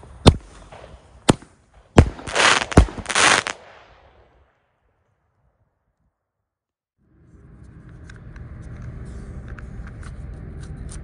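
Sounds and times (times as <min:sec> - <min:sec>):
firework bangs: 0:00.2 - 0:04.5
firework crackling: 0:00.7 - 0:04.0.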